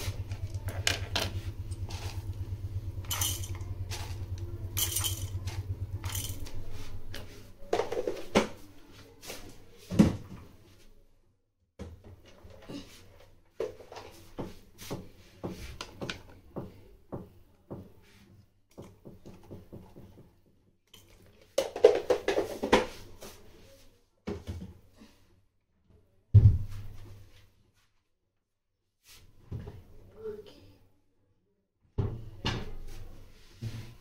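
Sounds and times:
containers clicking and knocking: 0.0s - 8.6s, 20.9s - 23.0s
rattling clatter: 0.2s - 6.7s.

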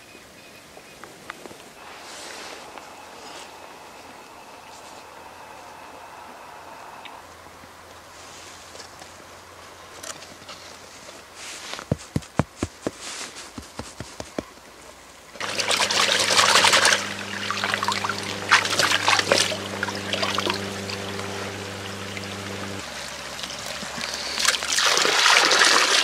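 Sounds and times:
low steady hum: 1.8s - 10.1s, 15.1s - 25.4s
sharp taps: 11.8s - 14.6s
water trickling and splashing: 14.5s - 26.0s.

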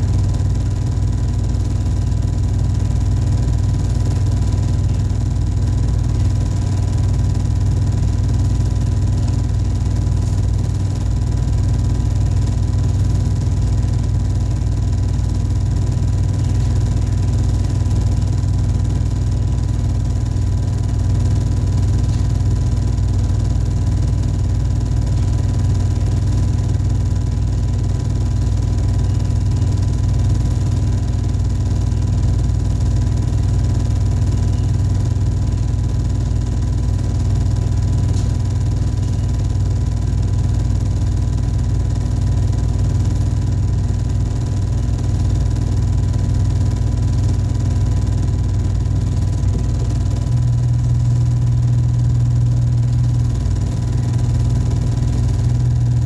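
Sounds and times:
film projector running: 0.0s - 56.0s.

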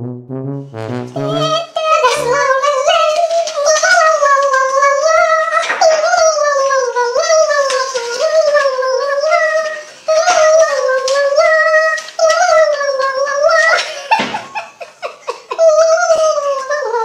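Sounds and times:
high-pitched voice holding wavering notes: 0.9s - 2.6s.

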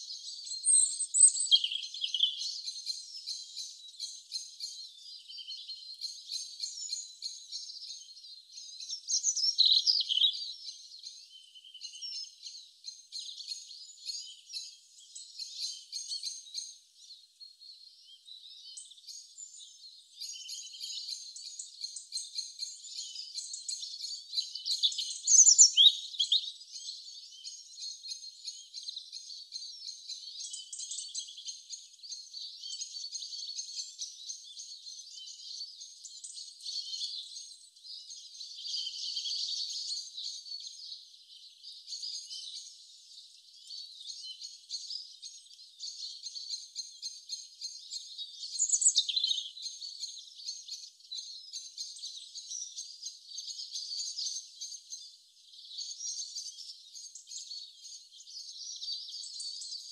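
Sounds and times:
birds chirping and singing: 0.0s - 59.9s
downward-sweeping bird calls: 0.0s - 59.9s.

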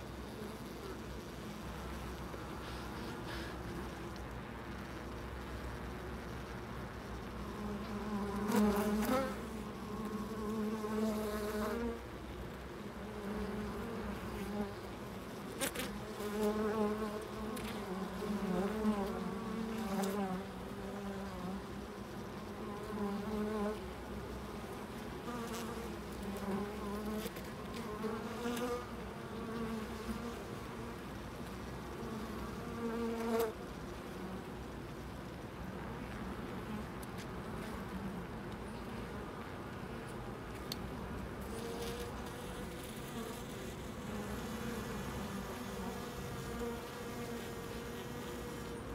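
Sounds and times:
honeybees buzzing: 15.6s - 33.6s, 41.4s - 48.9s.

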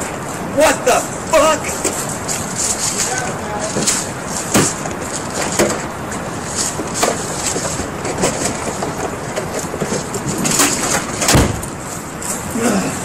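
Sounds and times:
knocks and clicks loading car: 3.7s - 11.8s.

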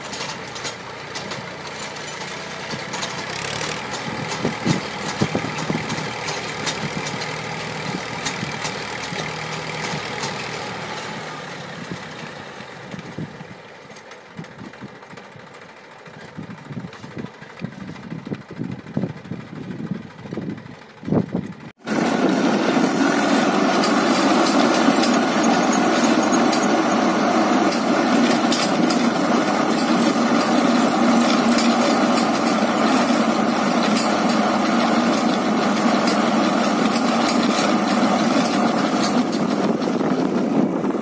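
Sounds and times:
auger boring into soil: 0.0s - 12.3s, 21.8s - 40.4s
tractor diesel engine running: 0.0s - 41.0s.

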